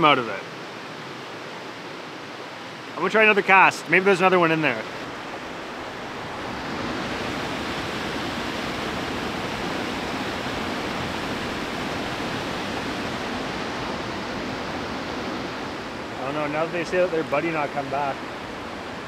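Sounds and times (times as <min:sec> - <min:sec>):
water rushing over rapids: 0:00.0 - 0:19.0.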